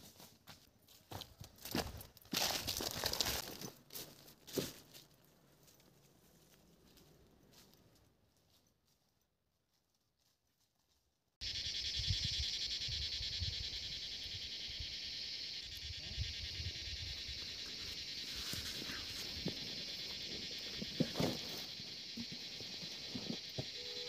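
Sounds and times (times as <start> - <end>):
high-pitched insect chorus: 11.4 - 24.0.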